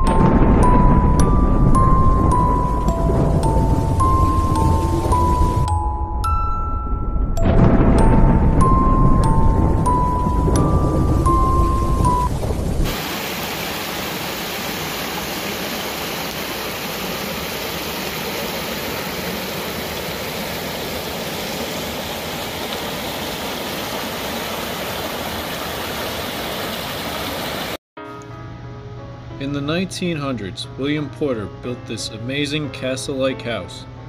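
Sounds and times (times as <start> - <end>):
intro music: 0.0 - 12.5
stream rushing over rocks: 12.8 - 27.8.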